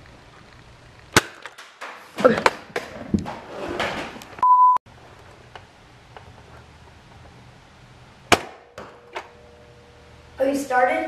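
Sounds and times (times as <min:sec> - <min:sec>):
high censor beep: 0:04.4 - 0:04.8.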